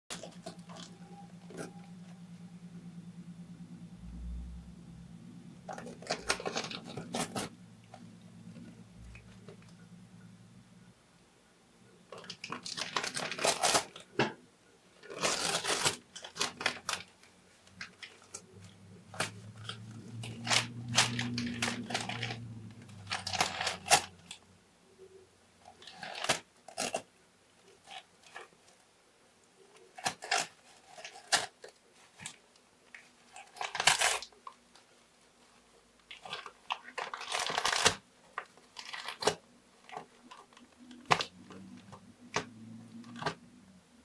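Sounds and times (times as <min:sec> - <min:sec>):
cat tearing paper: 0:05.7 - 0:07.5, 0:12.2 - 0:14.1, 0:15.0 - 0:17.1, 0:17.8 - 0:24.4, 0:25.8 - 0:27.1, 0:29.9 - 0:32.4, 0:33.3 - 0:34.4, 0:36.1 - 0:38.0, 0:38.8 - 0:43.4.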